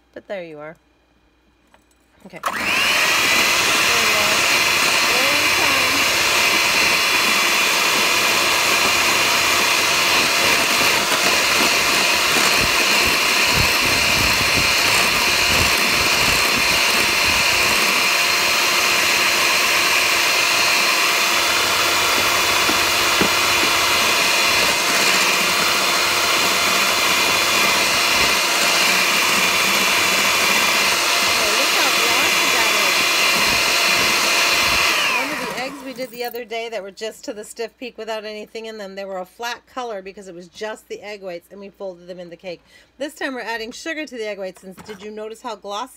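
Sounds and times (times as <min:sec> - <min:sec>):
electric hand mixer whipping: 0:02.4 - 0:36.2.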